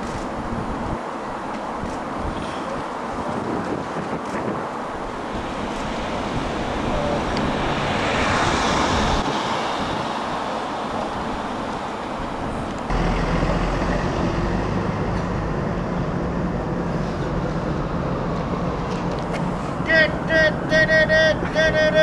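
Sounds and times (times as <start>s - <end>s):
urban traffic noise: 0.0s - 22.0s
vehicle passing: 4.9s - 22.0s.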